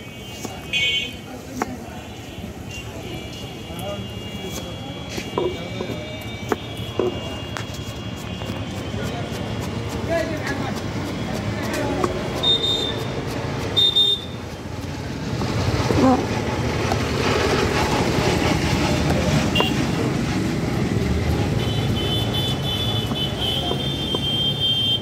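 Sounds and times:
street traffic noise: 0.0 - 25.0
high-pitched vehicle horn: 2.0 - 9.3, 12.4 - 13.2, 13.8 - 14.4, 21.6 - 25.0.

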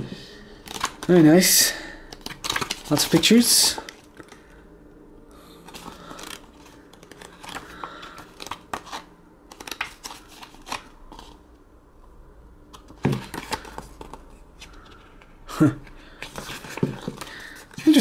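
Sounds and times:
paper pages rustling: 0.6 - 1.2, 2.1 - 4.4, 5.7 - 11.4, 12.7 - 15.1, 16.1 - 18.0.

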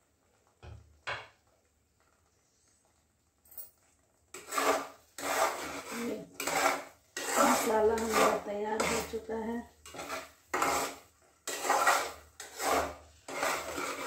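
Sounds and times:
metal spatula scraping a pot: 4.3 - 14.0.

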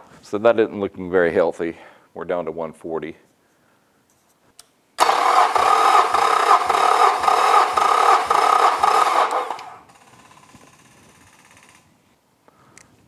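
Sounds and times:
electric starter cranking engine: 5.0 - 11.9.

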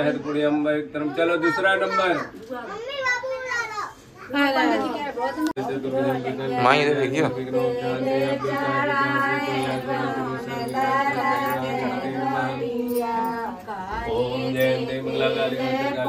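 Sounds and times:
women singing together: 4.3 - 16.0.

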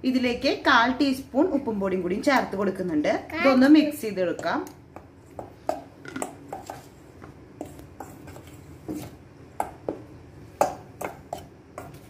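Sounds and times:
spoon stirring dry flour: 4.2 - 12.0.

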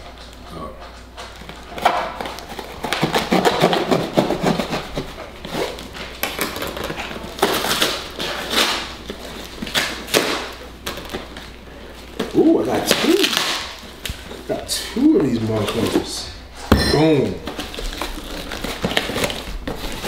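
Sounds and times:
cardboard crinkling and tearing: 2.2 - 14.6, 17.4 - 20.0
knife scraping packing tape: 2.4 - 10.6.

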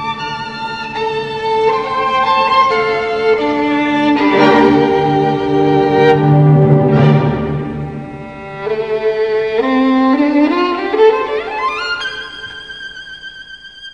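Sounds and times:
bowed string music: 0.0 - 13.9.

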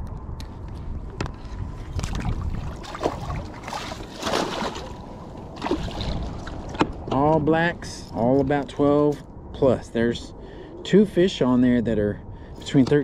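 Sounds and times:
fish splashing in water: 2.0 - 6.8.

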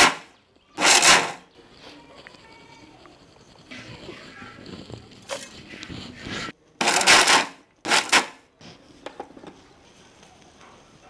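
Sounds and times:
loud bursts of noise: 0.0 - 1.5
cup scraping granules in metal pan: 0.0 - 5.8, 6.8 - 8.4.

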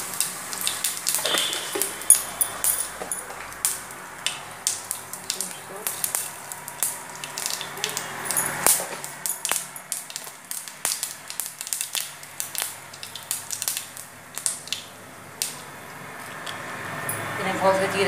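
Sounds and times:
seeds sizzling and popping in oil: 0.0 - 17.4.

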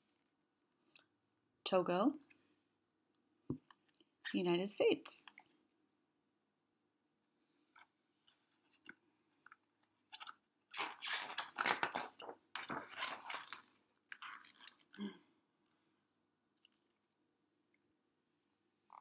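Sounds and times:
book pages rustling: 7.6 - 15.0.

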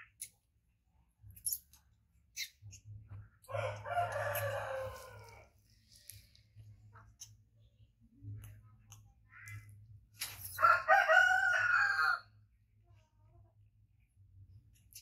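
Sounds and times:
rooster crowing: 3.5 - 5.5, 10.6 - 12.3.

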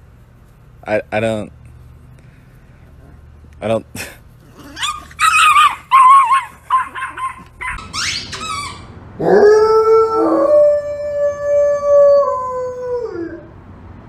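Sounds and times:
wavering high-pitched cries: 4.6 - 13.2
dog howling: 4.6 - 13.5.

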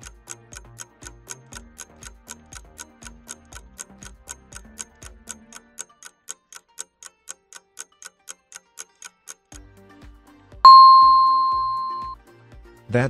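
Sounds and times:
countdown timer ticking: 0.0 - 5.7, 10.7 - 12.2
loud bell ding: 10.7 - 12.2.

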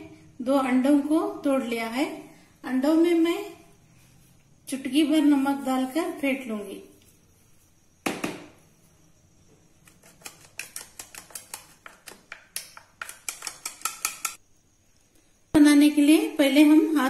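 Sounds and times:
knock: 8.0 - 8.5
spoon clicking against bowl: 12.5 - 14.4.

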